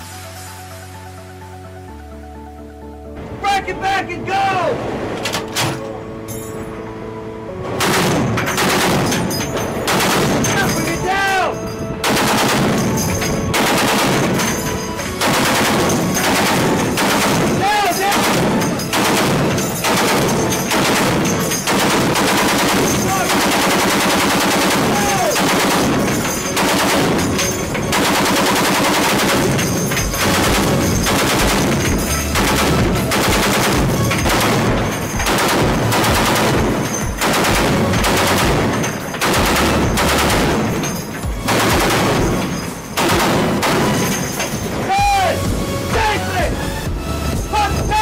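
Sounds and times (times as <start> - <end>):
heavy machine gun bursts: 7.8 - 11.4, 12.0 - 45.0.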